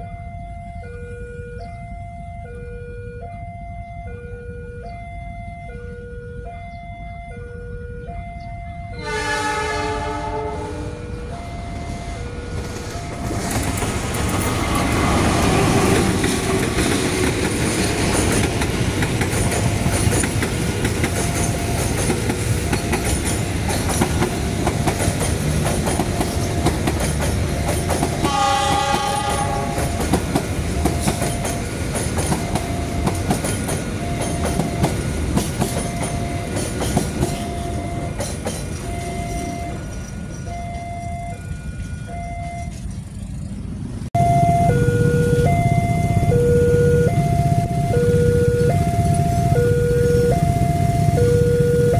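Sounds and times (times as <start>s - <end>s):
level crossing warning tone: 0.0s - 43.4s, 44.2s - 51.9s
train rumbling past: 8.7s - 51.9s
train horn: 8.9s - 11.3s, 28.2s - 30.1s
wheels clacking over rail joints: 12.5s - 41.1s.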